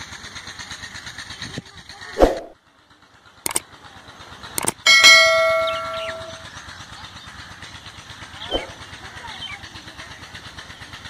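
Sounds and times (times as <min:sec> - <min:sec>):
faint outdoor background noise: 0:00.0 - 0:11.0
notification bell ding: 0:04.9 - 0:06.4.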